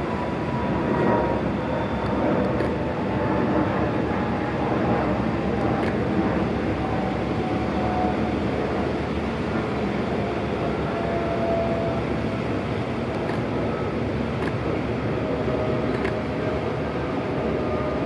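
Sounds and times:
churning boat wake: 0.0 - 18.0
faint whining tones: 0.1 - 18.0
ferry diesel engines rumbling: 3.8 - 18.0.

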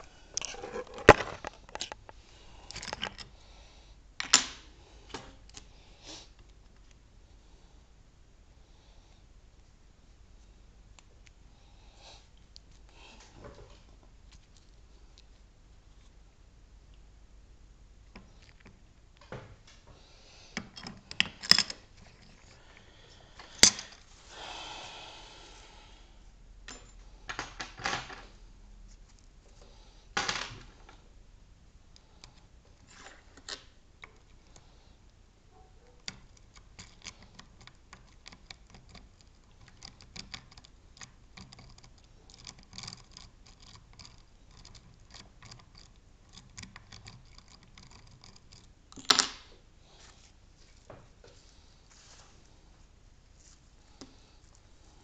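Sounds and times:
lock picks clicking and scraping: 0.0 - 3.4, 20.6 - 24.0, 36.0 - 49.5.

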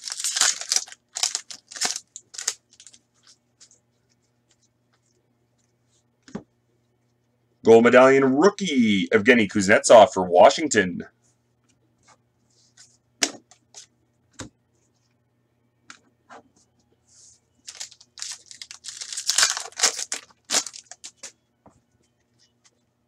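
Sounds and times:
wrapper tearing and crinkling: 0.0 - 3.0, 17.7 - 21.3.

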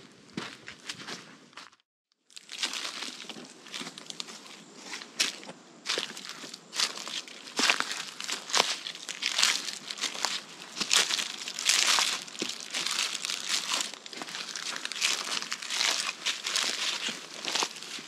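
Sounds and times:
footsteps crunching through dry leaves: 0.3 - 18.0.

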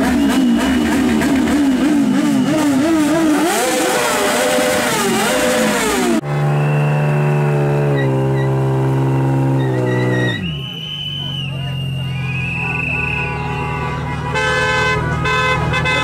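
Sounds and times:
car engine at high revs: 0.0 - 10.8
motorcycle engines revving: 0.0 - 16.0
tyres squealing: 7.9 - 13.7.

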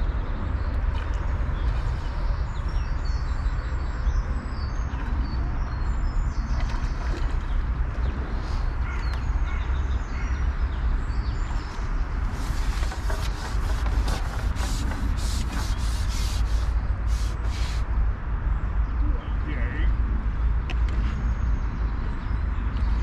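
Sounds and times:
birds chirping: 0.0 - 17.8.

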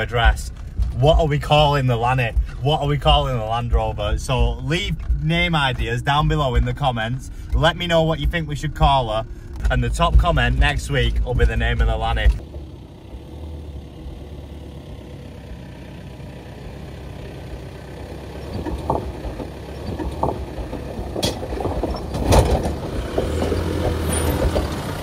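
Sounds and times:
vehicle knocking over rocks: 0.0 - 9.0, 18.4 - 25.0
tyres crunching over loose stones: 0.0 - 12.8, 18.3 - 25.0
off-road vehicle engine running low: 0.0 - 25.0.

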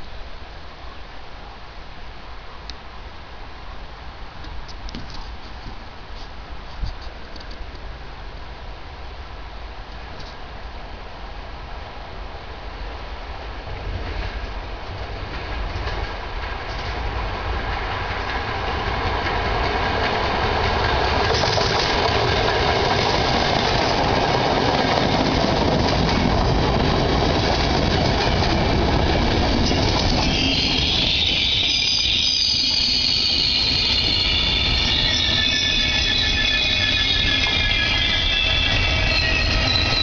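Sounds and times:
train wheels clattering on rails: 13.7 - 40.0
high squealing tones: 29.2 - 40.0.

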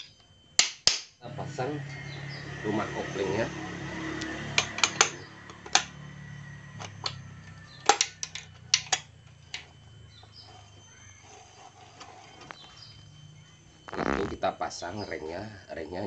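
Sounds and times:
faint hum: 0.0 - 16.0
metal engine parts clinking: 4.5 - 6.0, 6.7 - 10.8.

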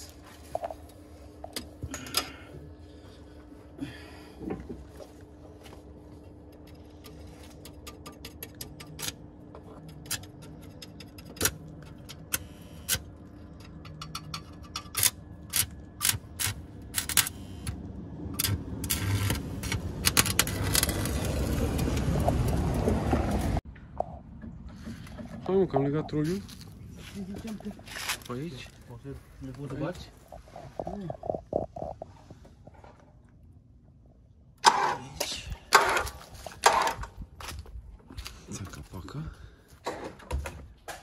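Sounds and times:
steady hum: 0.0 - 38.4
welding arc crackling: 18.4 - 22.6.

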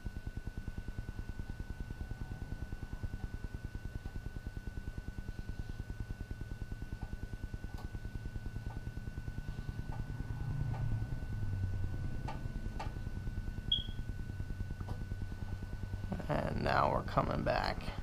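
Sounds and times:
drone propellers humming: 9.0 - 18.0
short high chirp: 13.7 - 14.0.

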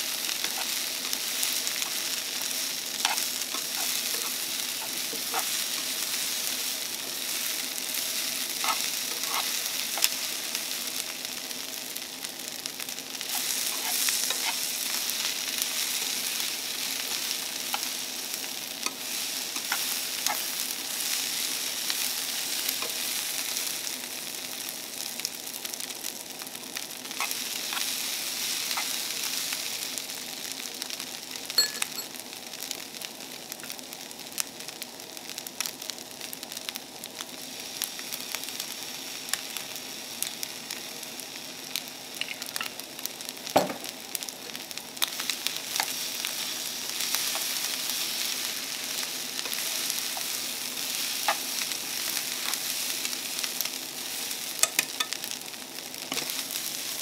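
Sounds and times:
fried rice sizzling in pan: 0.0 - 57.0
chopsticks clicking and scraping pan: 0.4 - 5.9, 8.6 - 10.2, 13.3 - 15.4, 18.8 - 20.6, 27.1 - 28.0, 45.0 - 48.3, 49.4 - 52.9, 54.5 - 55.2, 56.1 - 57.0.

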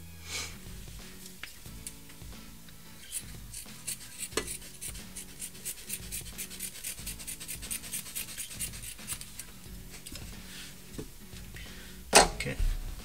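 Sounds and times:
scissors snipping fabric: 3.0 - 9.5.

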